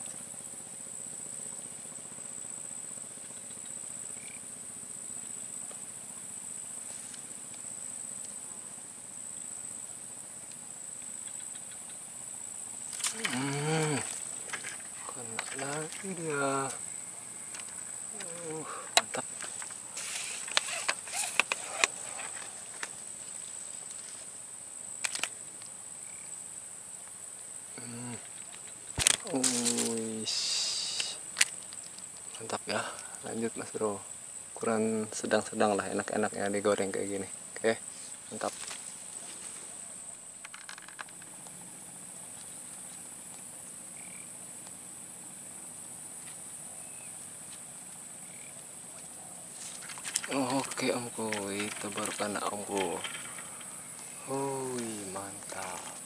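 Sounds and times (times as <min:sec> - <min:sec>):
frogs calling: 0:00.0 - 0:56.0
high-pitched insect trill: 0:00.0 - 0:56.0
rustling: 0:12.8 - 0:24.4, 0:28.2 - 0:32.5, 0:37.8 - 0:41.6, 0:46.2 - 0:56.0.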